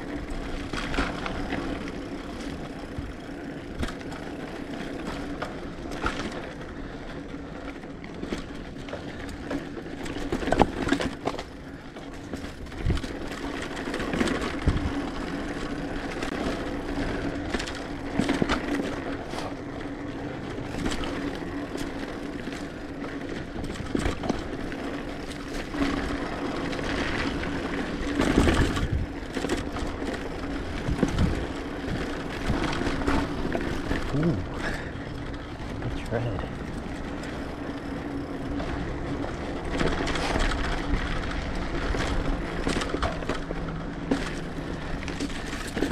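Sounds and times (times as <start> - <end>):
bike rattling and knocking: 0.0 - 45.9
bike tyres crunching on dirt: 0.0 - 45.9.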